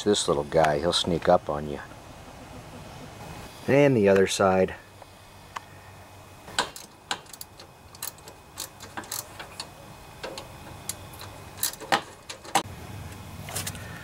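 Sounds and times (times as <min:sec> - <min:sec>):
wrench clicking on bolt: 0:06.5 - 0:12.6.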